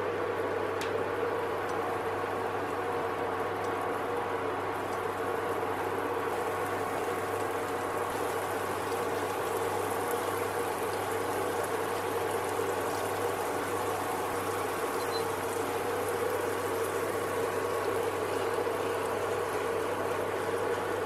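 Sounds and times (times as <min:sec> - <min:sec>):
cheese sizzling in a frying pan: 0:06.2 - 0:18.3.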